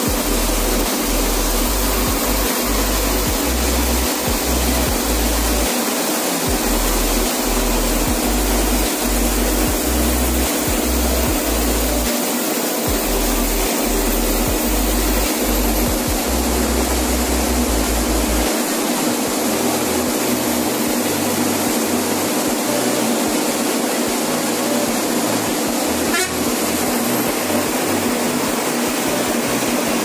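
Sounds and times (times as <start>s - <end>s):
bus road and engine noise: 19.4s - 30.0s
vehicle horn: 26.0s - 26.5s.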